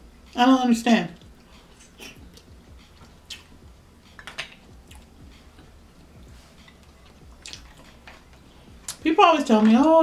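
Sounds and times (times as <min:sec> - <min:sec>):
wet chewing smacks: 0:01.9 - 0:03.5, 0:06.6 - 0:09.0.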